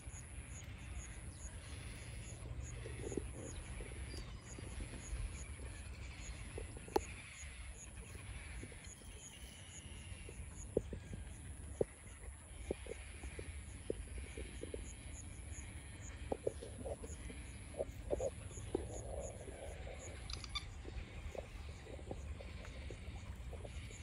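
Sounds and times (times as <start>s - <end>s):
distant bird calls: 0.0s - 24.0s.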